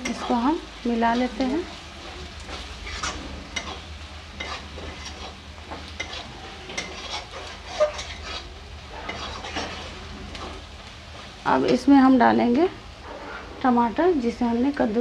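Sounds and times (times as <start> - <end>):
oil sizzling: 0.0 - 15.0
metal spatula scraping pan: 1.1 - 11.8, 13.0 - 13.8.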